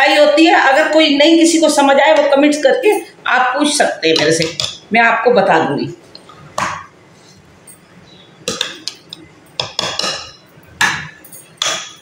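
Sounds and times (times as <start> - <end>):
spoon knocking on glass and steel: 8.5 - 12.0.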